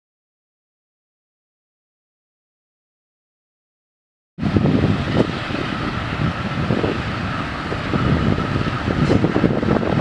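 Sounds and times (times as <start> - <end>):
distant diesel locomotive running: 4.4 - 10.0
wind buffeting microphone: 4.4 - 10.0.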